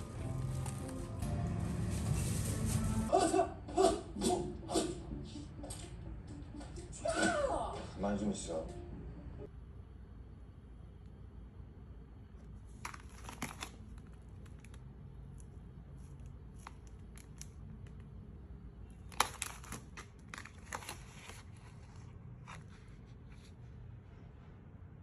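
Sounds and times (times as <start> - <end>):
crinkling and tearing: 0.0 - 1.2, 12.6 - 18.1, 19.0 - 23.4.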